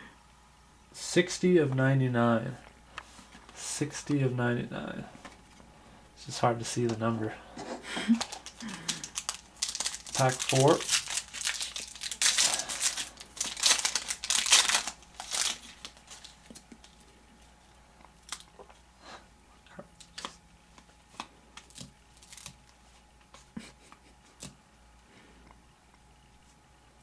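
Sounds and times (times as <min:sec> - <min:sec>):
foil wrapper crinkling and tearing: 0:08.1 - 0:17.1, 0:18.2 - 0:18.6, 0:21.1 - 0:22.6.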